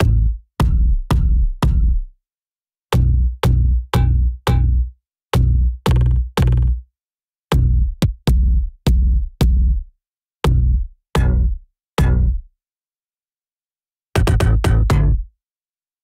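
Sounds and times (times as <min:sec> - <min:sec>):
deep synthesized drum hits: 0:00.0 - 0:02.0.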